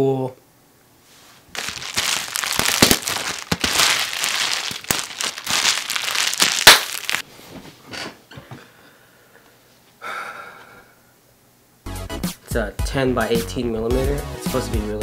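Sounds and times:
bubble wrap crackling and popping: 1.5 - 7.2.

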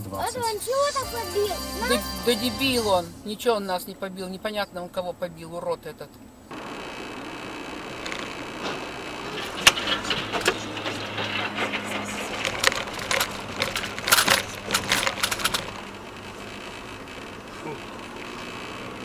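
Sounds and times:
car road noise: 0.0 - 19.0
sharp clicks and rattles: 6.5 - 19.0.

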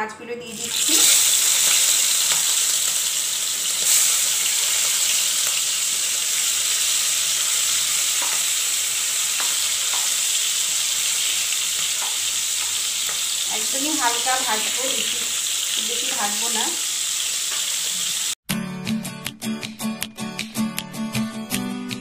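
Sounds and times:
prawns sizzling in a wok: 0.6 - 18.4
metal spatula tapping: 8.2 - 8.5.

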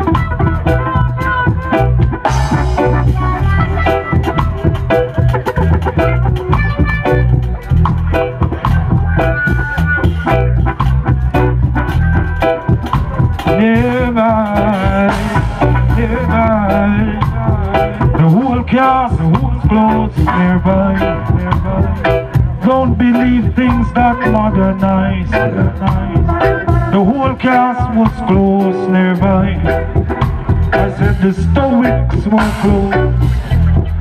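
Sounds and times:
wavering melody line: 0.0 - 19.3
reggae band playing: 0.0 - 34.0.

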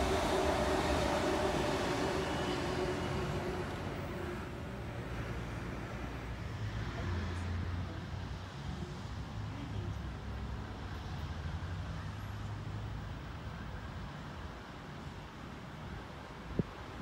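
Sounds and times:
electric train motor whine: 0.0 - 5.2.

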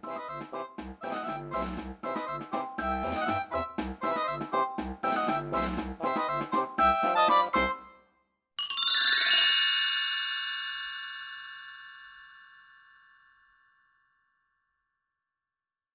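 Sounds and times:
background piano music: 0.0 - 7.9
bright bell-like chime: 8.6 - 13.9.

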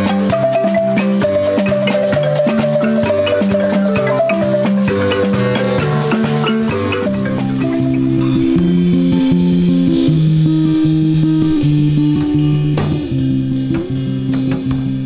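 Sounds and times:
high marimba note roll: 0.0 - 10.1
marimba ensemble playing: 0.0 - 10.6.

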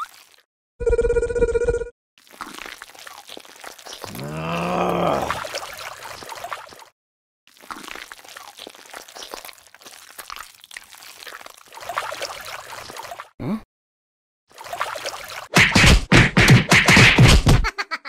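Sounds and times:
small clicks and drips: 0.0 - 0.5, 2.2 - 4.1, 5.4 - 6.9, 7.5 - 13.3
muddy water splashing: 2.2 - 6.9, 7.5 - 13.3, 14.5 - 15.5
low grunting sound effect: 4.1 - 5.5, 13.4 - 13.6.

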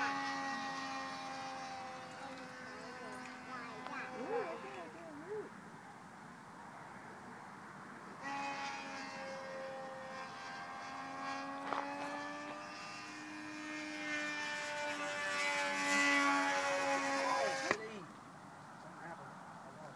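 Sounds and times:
model airplane engine buzzing: 0.0 - 5.5, 8.1 - 18.0.

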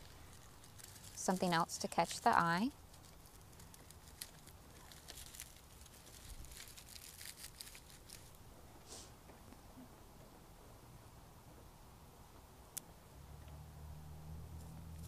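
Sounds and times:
dry twigs rustling and crackling: 0.0 - 8.4.

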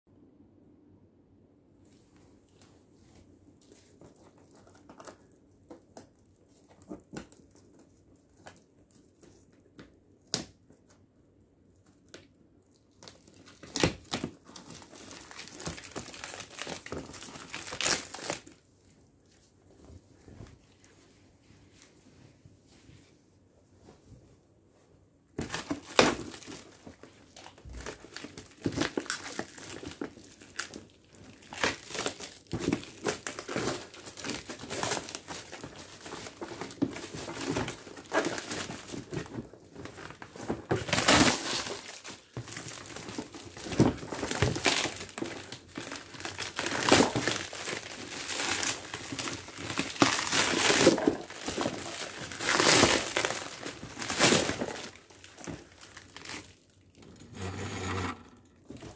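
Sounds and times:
plastic wrapping tearing and crinkling: 12.1 - 18.6, 25.4 - 58.9.

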